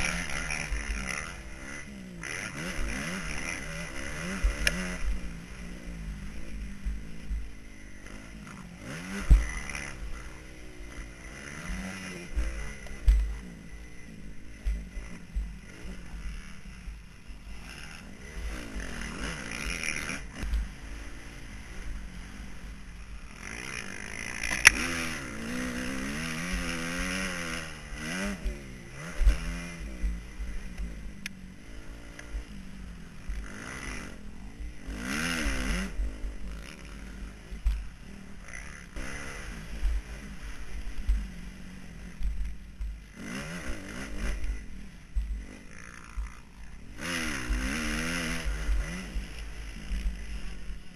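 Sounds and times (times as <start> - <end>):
motocross bike engine revving: 0.0 - 50.9.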